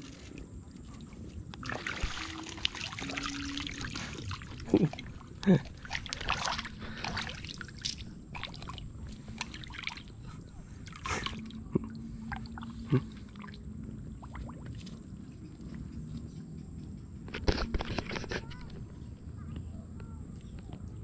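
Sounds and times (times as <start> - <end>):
lake water splashing and dripping: 0.0 - 16.3.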